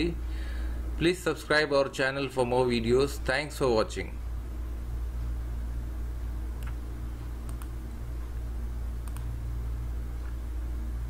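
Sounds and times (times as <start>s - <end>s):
low background hum: 0.0s - 11.0s
computer mouse clicks: 6.6s - 6.8s, 7.4s - 7.8s, 9.0s - 9.3s.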